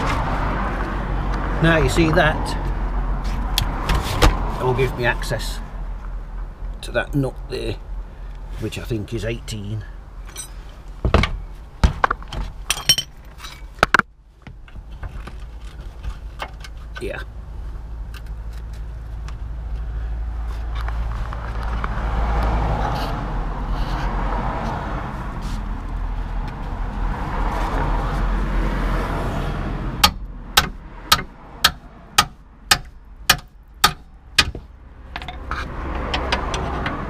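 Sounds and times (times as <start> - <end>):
vehicle passing: 0.0 - 6.4, 19.5 - 32.6, 34.2 - 37.0
hammer striking spanner: 30.0 - 34.6.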